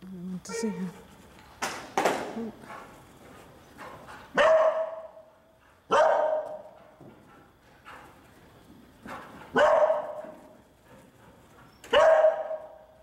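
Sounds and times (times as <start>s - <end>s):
dog barking: 4.4s - 5.2s, 5.9s - 6.6s, 9.5s - 10.3s, 11.9s - 12.8s.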